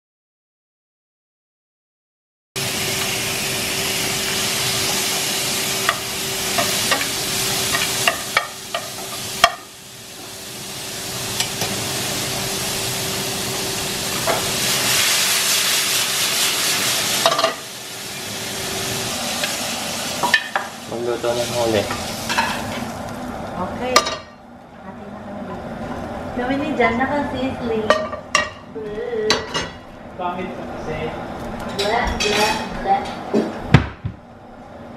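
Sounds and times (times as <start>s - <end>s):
beef sizzling in a skillet: 2.6s - 24.0s.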